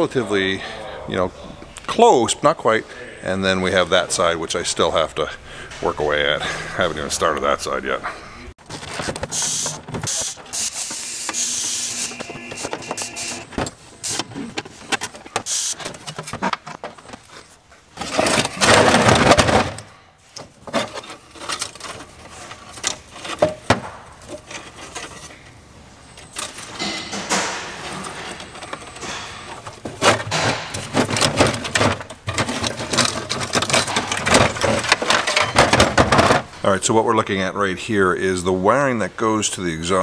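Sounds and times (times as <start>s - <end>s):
wiring rustling and clicking: 26.2s - 36.5s.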